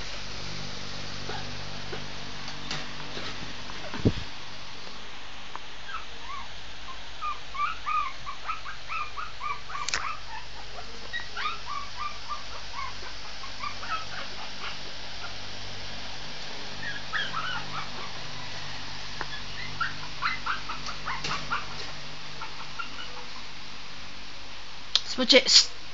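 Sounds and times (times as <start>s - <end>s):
puppy whimpering and yipping: 5.9s - 14.8s, 16.8s - 18.6s, 19.3s - 23.3s.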